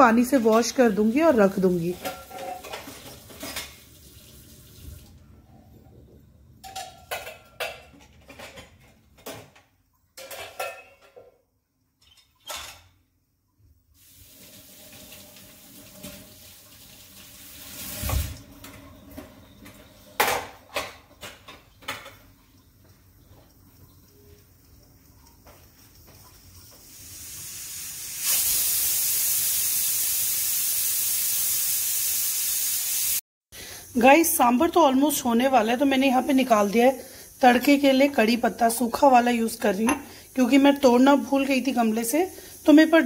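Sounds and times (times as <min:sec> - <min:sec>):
metal plates clinking together: 0:06.6 - 0:09.5, 0:10.2 - 0:11.3.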